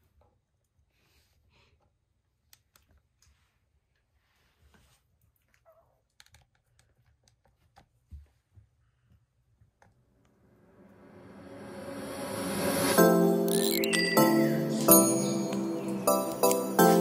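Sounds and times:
dog paws scuffing a rug: 3.2 - 5.6
music: 11.6 - 17.0.

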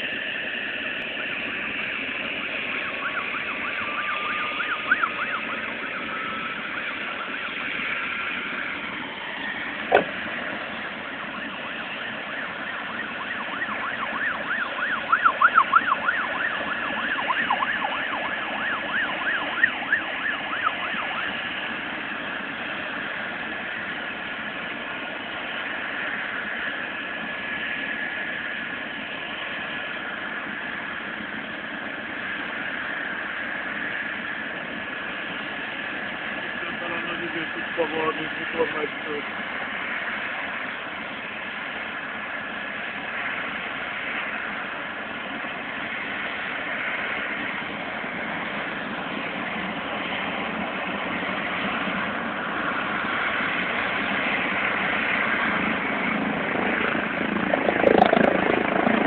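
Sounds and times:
helicopter rotor noise: 0.0 - 59.0
helicopter turbine whine: 0.0 - 59.0
sharp knock: 9.9 - 10.2.

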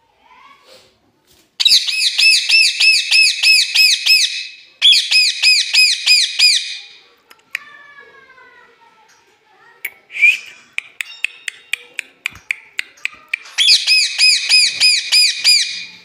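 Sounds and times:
parakeet screeching: 13.6 - 16.0.

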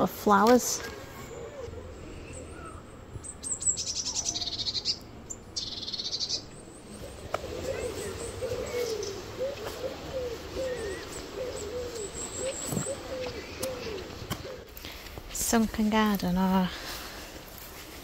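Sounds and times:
soft low wavering bird calls: 0.8 - 14.8
songbird trilling: 1.3 - 14.7.

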